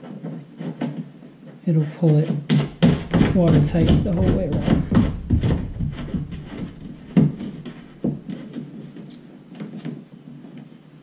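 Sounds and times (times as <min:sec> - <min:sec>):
knocks and rubbing in plastic hull: 0:02.5 - 0:08.4
loud thumps: 0:02.5 - 0:08.4.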